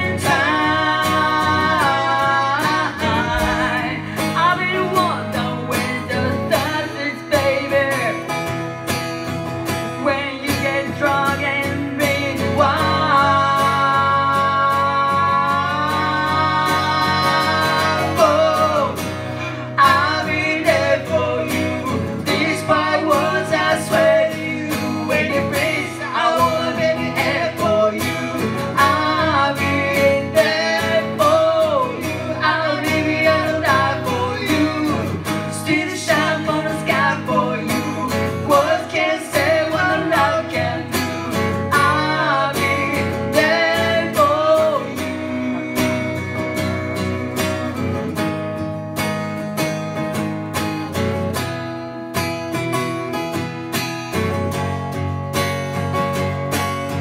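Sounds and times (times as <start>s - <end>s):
woman singing: 0.0s - 8.2s, 10.0s - 19.1s, 19.7s - 47.5s
strummed acoustic guitar: 0.0s - 57.0s.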